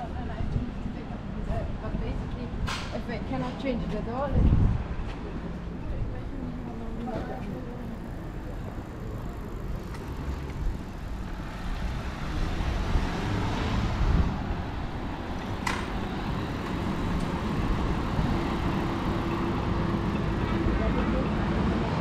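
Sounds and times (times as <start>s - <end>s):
engine hum: 5.0s - 22.0s
cars driving past: 6.7s - 22.0s.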